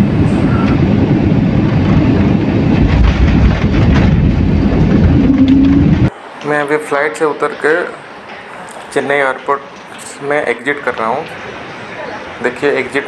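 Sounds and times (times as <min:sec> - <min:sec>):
steady hum: 0:00.0 - 0:08.6
airliner engines and wheels rumbling: 0:00.0 - 0:13.0.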